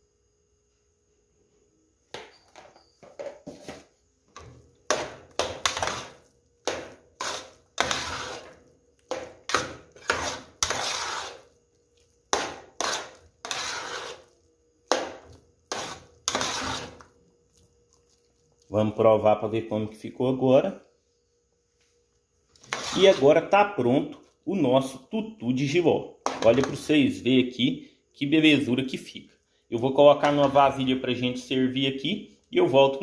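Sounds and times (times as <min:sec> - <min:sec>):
metal spoon scraping a pot: 0:05.6 - 0:06.2, 0:07.2 - 0:11.5, 0:12.4 - 0:14.4, 0:15.7 - 0:17.1, 0:22.6 - 0:23.4.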